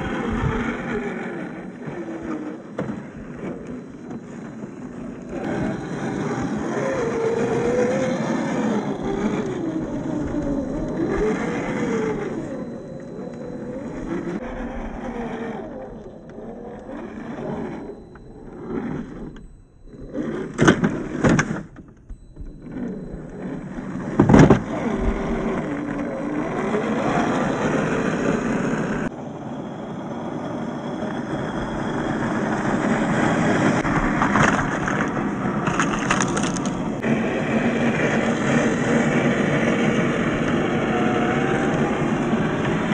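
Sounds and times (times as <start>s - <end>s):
electric motor whine: 0.0s - 42.9s
knocks and scrapes on terrain: 33.8s - 37.0s.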